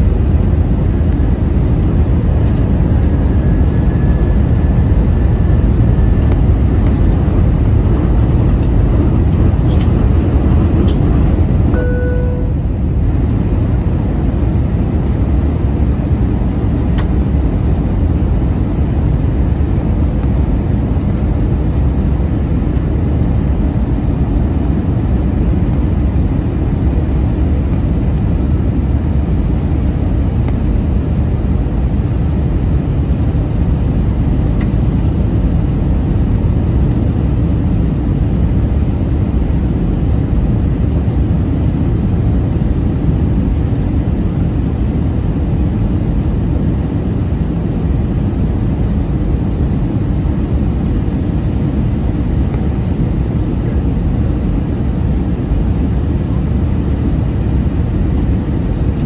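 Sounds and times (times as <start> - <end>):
jet engine roar in cabin: 0.0 - 59.0
brief beep tone: 11.7 - 12.6.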